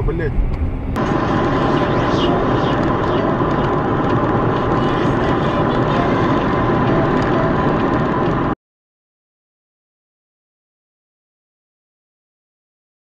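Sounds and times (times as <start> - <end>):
car engine and tyre noise: 0.0 - 8.6.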